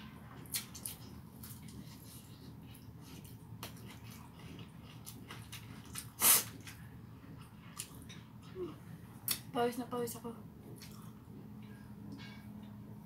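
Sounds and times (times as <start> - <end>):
low steady hum: 0.0 - 13.0
person chewing food: 0.3 - 9.4, 10.6 - 12.8.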